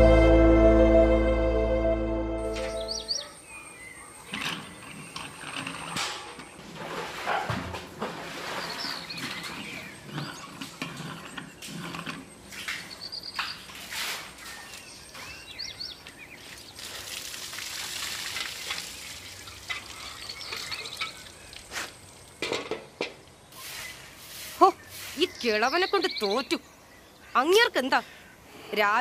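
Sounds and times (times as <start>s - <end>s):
birds chirping: 2.5s - 6.6s, 8.5s - 17.0s, 18.9s - 22.5s, 23.2s - 29.0s
broom sweeping: 23.5s - 25.6s.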